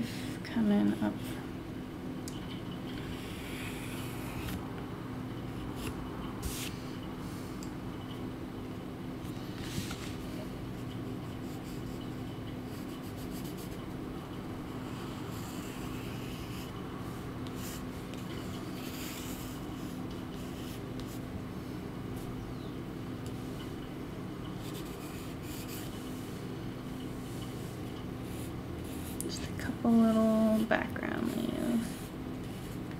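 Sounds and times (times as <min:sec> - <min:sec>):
pencil scratching on paper: 0:10.8 - 0:13.8, 0:14.8 - 0:16.7, 0:17.5 - 0:21.2, 0:24.6 - 0:26.2, 0:27.3 - 0:32.9.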